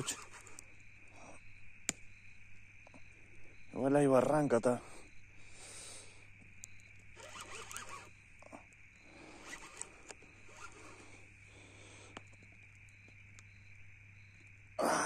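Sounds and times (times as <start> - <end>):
fishing reel whirring: 0.0 - 0.5, 7.1 - 11.2.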